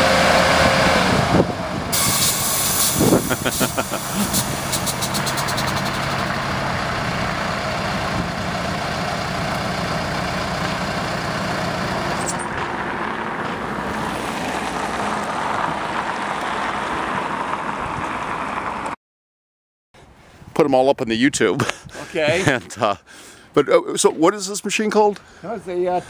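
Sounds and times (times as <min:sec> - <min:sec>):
engine idling: 0:02.0 - 0:12.7.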